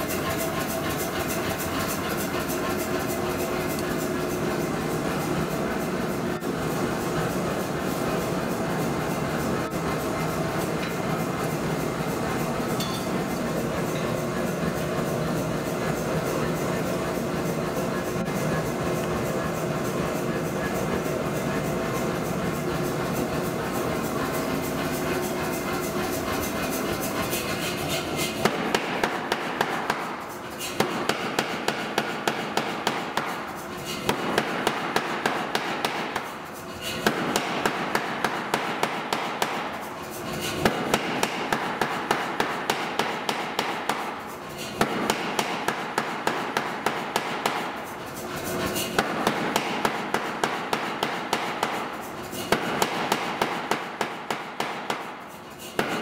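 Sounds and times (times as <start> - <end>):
steady machine drone: 0.0 - 56.0
power hammer striking steel: 10.5 - 14.8, 24.1 - 48.0, 48.6 - 56.0.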